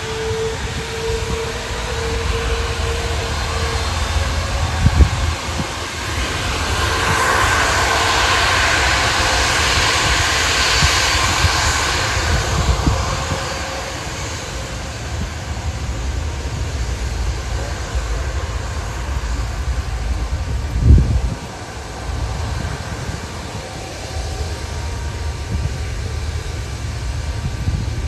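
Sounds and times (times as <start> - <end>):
jet engines taxiing: 0.0 - 28.0.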